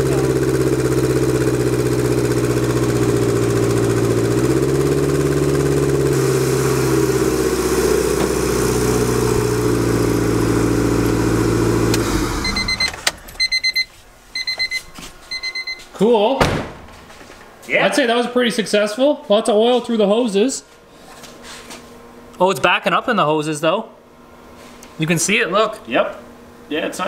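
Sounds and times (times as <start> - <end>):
car engine idling: 0.0 - 13.4
short electronic beeps: 12.4 - 15.9.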